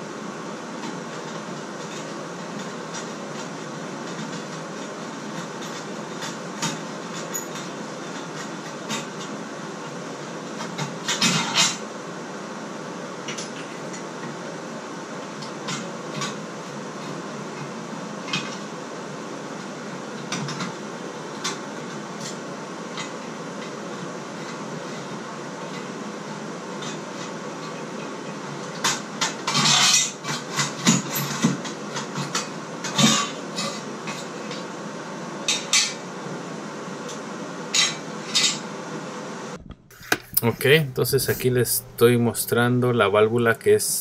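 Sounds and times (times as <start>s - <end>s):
steady hiss: 39.9s - 44.0s.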